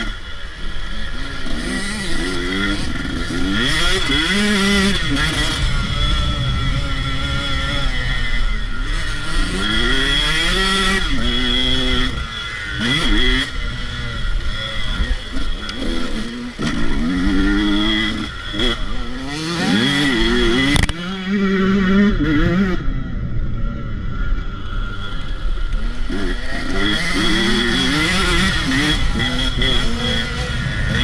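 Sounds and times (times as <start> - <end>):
dirt bike engine revving: 0.0 - 31.0
wind rumbling on microphone: 4.8 - 9.5.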